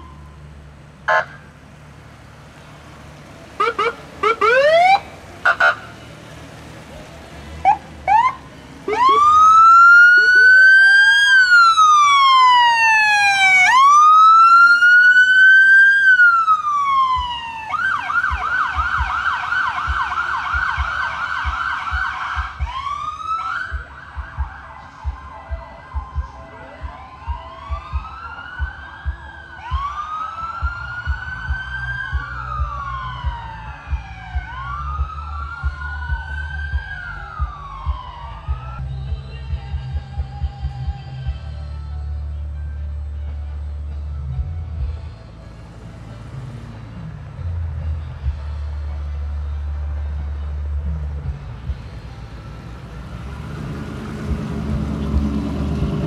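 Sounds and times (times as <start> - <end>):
electronic vehicle siren: 1.1 - 1.4, 3.6 - 6.1, 7.6 - 38.8
low regular thuds: 17.0 - 41.5, 50.8 - 56.0.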